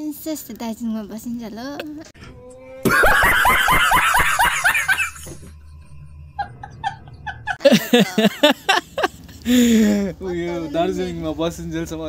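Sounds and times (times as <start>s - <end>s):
man laughing hard: 2.8s - 5.6s, 6.4s - 9.9s.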